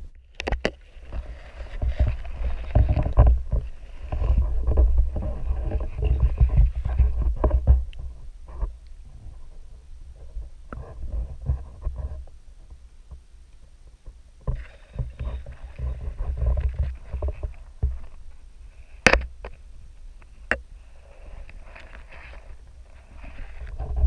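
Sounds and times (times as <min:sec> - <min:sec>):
underwater rumbling and bumping: 0:00.0 - 0:24.0.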